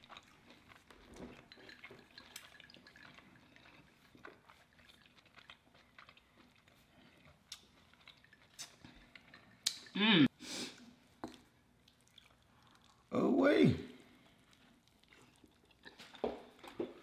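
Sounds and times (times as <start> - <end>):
faint chewing: 0.0 - 10.0, 10.7 - 13.1, 14.0 - 17.0
wet mouth clicks: 8.6 - 8.8, 9.6 - 10.0.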